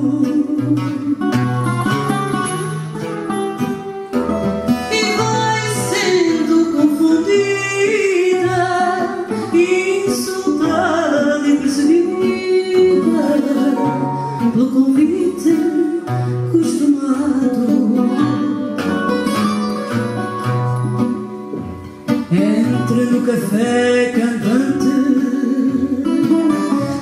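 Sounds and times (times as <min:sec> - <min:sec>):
woman singing slow melody: 0:00.0 - 0:01.6, 0:04.9 - 0:18.8, 0:22.3 - 0:27.0
guitars playing: 0:00.0 - 0:27.0.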